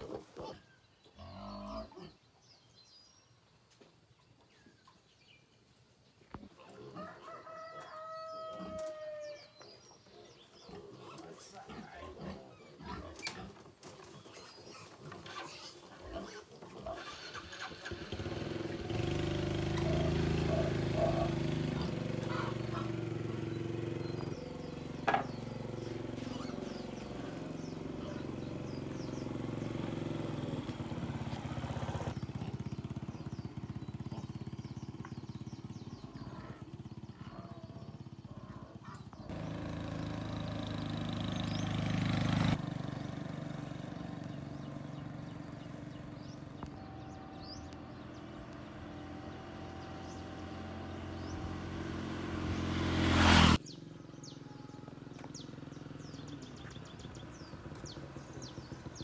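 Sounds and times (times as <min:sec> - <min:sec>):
motorcycle engine running: 0:17.0 - 0:59.0.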